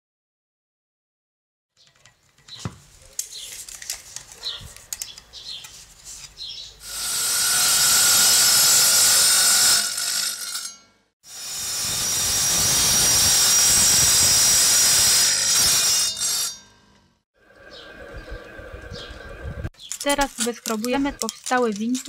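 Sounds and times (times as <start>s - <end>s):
handling knocks and scrapes: 1.8s - 6.8s, 19.8s - 22.0s
power tool running: 6.8s - 16.6s
circular saw cutting stone: 6.8s - 16.9s.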